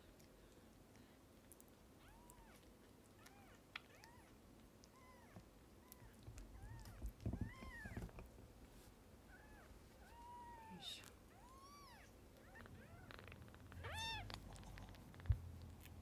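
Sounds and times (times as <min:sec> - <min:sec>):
kitten mewing: 0:09.3 - 0:15.0.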